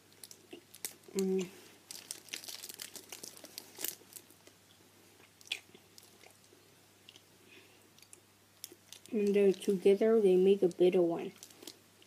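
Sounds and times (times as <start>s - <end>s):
person chewing sticky candy: 0.1s - 7.3s, 8.0s - 9.7s.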